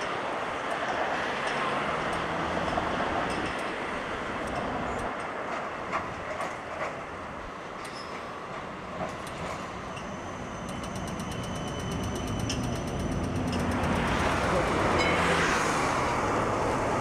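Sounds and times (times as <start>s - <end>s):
tram wheels clicking: 0.0s - 17.0s
tram high whine: 7.9s - 17.0s
fast even ticking: 10.7s - 14.5s.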